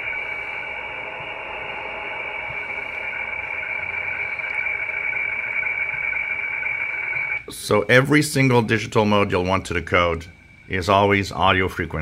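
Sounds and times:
weaker lower tone: 0:00.0 - 0:07.8
radio hiss: 0:00.0 - 0:12.0
steady high radio tone: 0:00.0 - 0:12.0.

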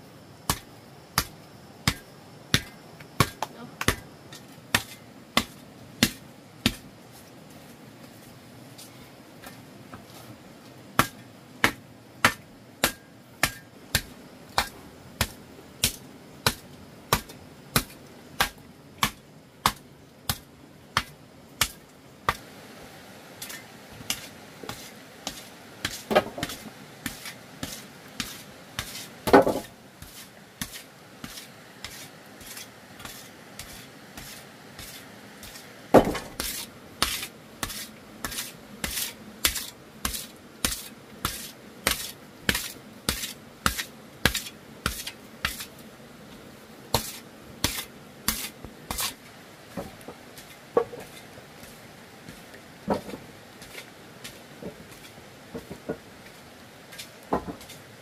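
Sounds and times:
hand tool striking: 0:11.0 - 0:20.4.

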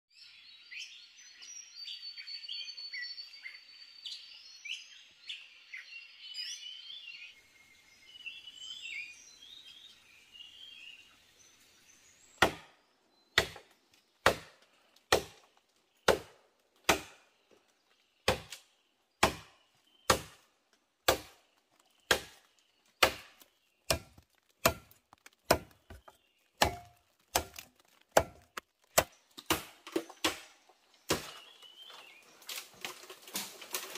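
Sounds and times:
forest birds chirping: 0:00.1 - 0:33.9
axe chopping wood: 0:12.4 - 0:12.8, 0:13.4 - 0:17.3, 0:18.2 - 0:18.6, 0:19.2 - 0:20.4, 0:21.0 - 0:21.4, 0:22.1 - 0:31.6.

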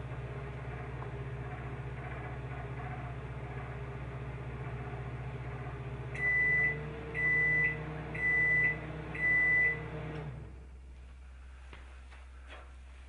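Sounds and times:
microwave oven humming: 0:00.0 - 0:11.6
microwave beeps: 0:06.1 - 0:10.4.

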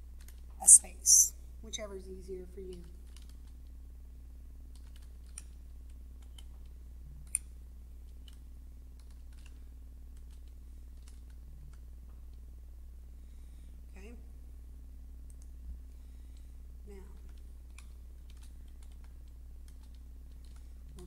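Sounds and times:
keyboard keys clicking: 0:02.6 - 0:03.6, 0:04.7 - 0:05.5, 0:17.2 - 0:20.7.

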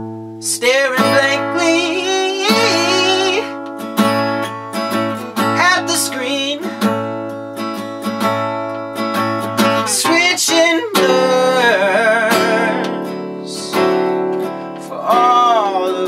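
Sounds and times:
acoustic guitar strumming: 0:00.0 - 0:16.0
man singing blues: 0:00.4 - 0:03.7, 0:05.3 - 0:07.2, 0:09.4 - 0:16.0.

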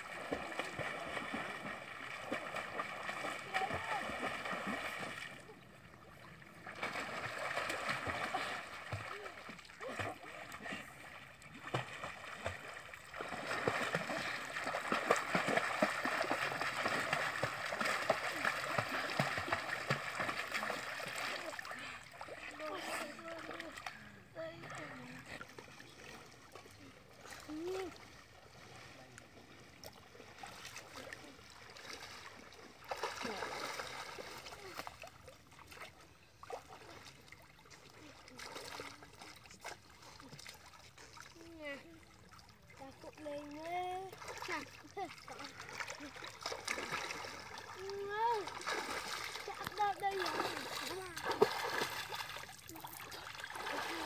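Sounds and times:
water splashing from swimmers: 0:00.0 - 0:54.0
faint children's voices: 0:47.6 - 0:51.6.

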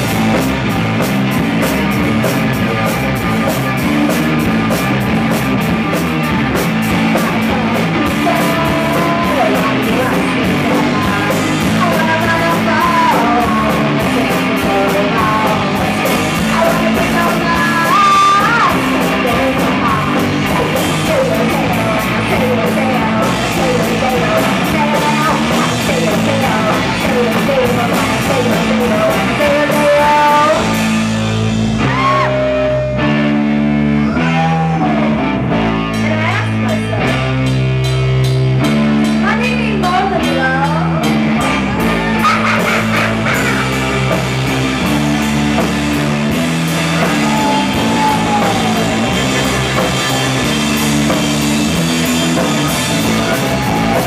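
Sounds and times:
drum kit with cymbals: 0:00.0 - 0:32.3, 0:36.0 - 0:54.0
electric bass: 0:00.0 - 0:54.0
electric guitar: 0:00.0 - 0:54.0
woman singing: 0:07.1 - 0:30.8, 0:39.1 - 0:41.6.

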